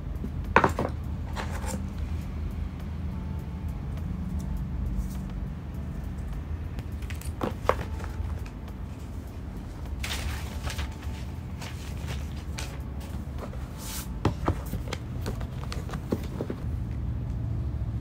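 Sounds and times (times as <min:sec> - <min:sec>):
steady low hum: 0:00.0 - 0:18.0
cardboard taps and knocks: 0:00.6 - 0:01.0, 0:07.4 - 0:08.2, 0:14.2 - 0:16.6
paper rustling and sliding: 0:10.0 - 0:16.6.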